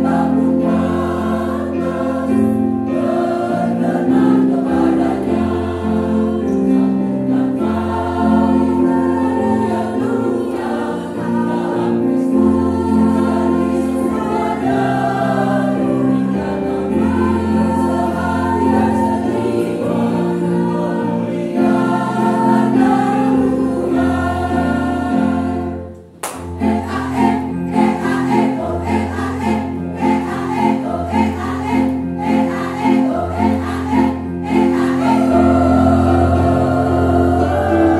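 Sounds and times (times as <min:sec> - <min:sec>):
women's choir singing: 0:00.0 - 0:37.9.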